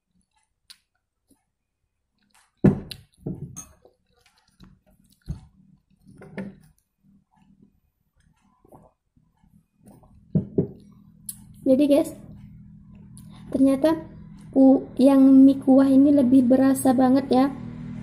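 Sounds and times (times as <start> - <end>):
clinks of spoons bowls and glass: 3.6 - 3.9.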